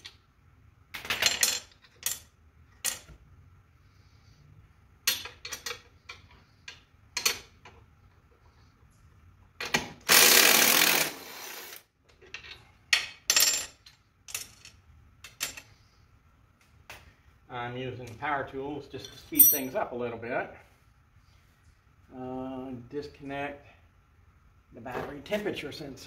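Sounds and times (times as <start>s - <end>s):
power drill spinning: 10.1s - 11.8s
metal clinks of wrench and bolts: 19.0s - 19.8s.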